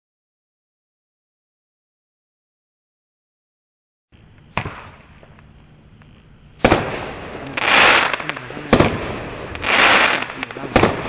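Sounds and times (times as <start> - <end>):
firework crackling: 4.1 - 11.0
firework thump: 4.2 - 5.4, 6.6 - 7.2, 8.0 - 11.0
firework bangs: 4.2 - 5.5, 6.6 - 11.0.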